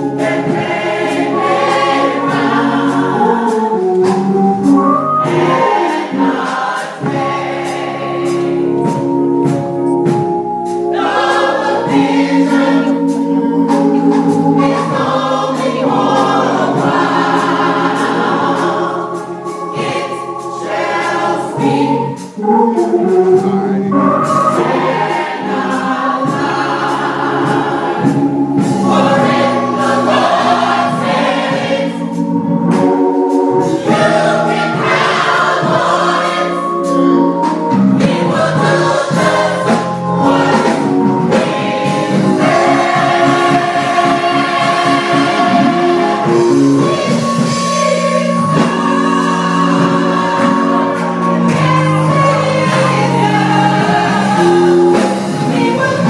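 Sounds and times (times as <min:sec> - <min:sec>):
gospel choir singing in harmony: 0:00.0 - 0:56.0.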